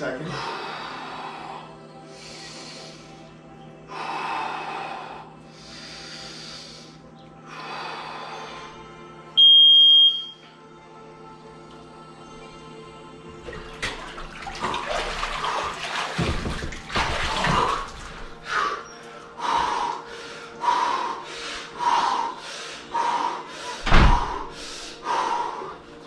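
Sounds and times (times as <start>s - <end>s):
man breathing hard: 0.3s - 9.1s, 17.2s - 26.0s
water splashing and pouring: 13.5s - 18.4s
heavy thuds: 16.1s - 18.3s, 23.8s - 24.6s.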